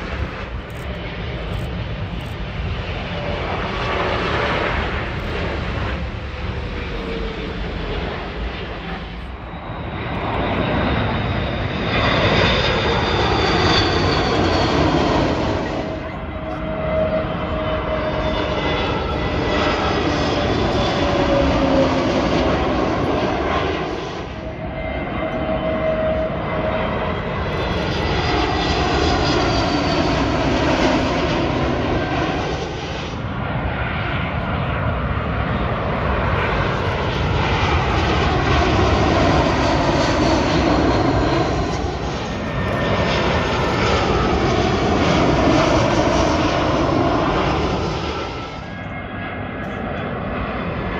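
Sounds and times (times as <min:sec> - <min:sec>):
jet airliners passing overhead: 0:00.0 - 0:50.9.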